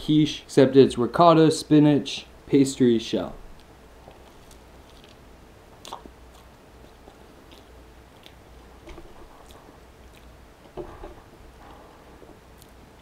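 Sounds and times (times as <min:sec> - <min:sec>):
person chewing pastry: 0:03.5 - 0:13.0
wet mouth sounds: 0:05.8 - 0:11.8.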